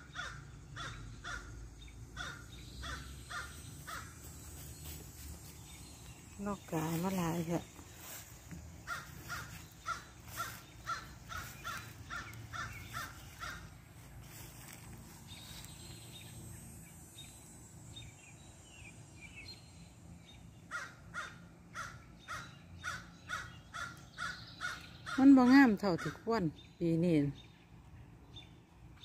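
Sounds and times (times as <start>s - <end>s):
crow cawing: 0.0s - 1.6s, 2.2s - 4.2s, 8.8s - 13.8s, 20.7s - 25.3s.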